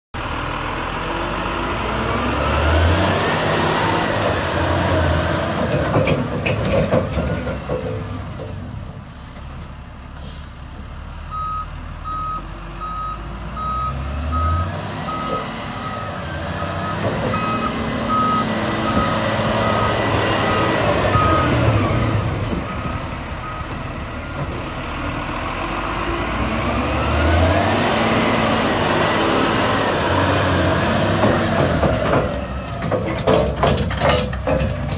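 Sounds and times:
dump truck diesel engine: 0.2s - 34.9s
reversing alarm beeping: 11.3s - 22.0s, 22.7s - 23.8s.

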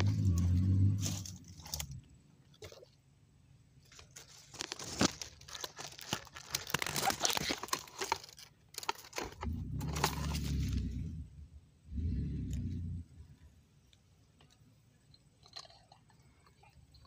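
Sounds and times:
low rumble: 0.0s - 2.2s, 9.4s - 13.5s
twigs and leaves crackling: 0.0s - 2.9s, 3.8s - 11.2s.

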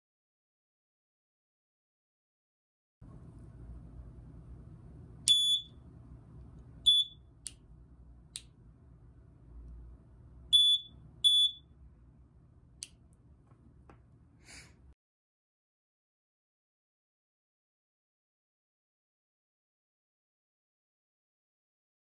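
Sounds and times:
piezo buzzer short high beeps: 5.3s - 5.8s, 6.9s - 7.2s, 10.5s - 11.7s.

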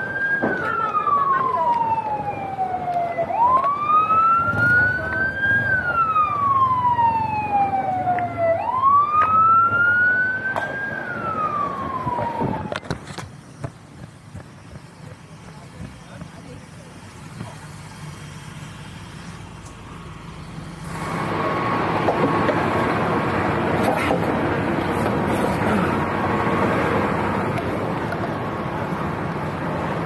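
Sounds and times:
emergency siren wailing: 0.0s - 13.0s, 20.2s - 30.0s.

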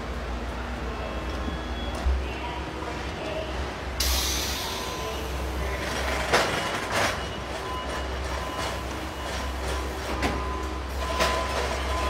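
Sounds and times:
sudden hiss: 4.0s - 5.2s.

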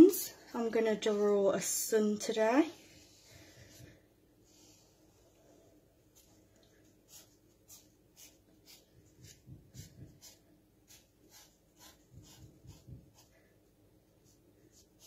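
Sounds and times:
marker pen scratching on towel: 7.1s - 13.4s.

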